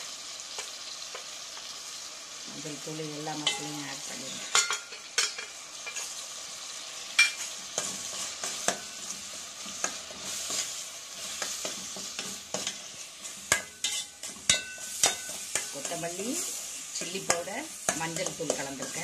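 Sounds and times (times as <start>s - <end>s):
masala frying and sizzling: 0.0s - 19.0s
steel spoon scraping pan: 3.4s - 6.2s, 7.2s - 19.0s.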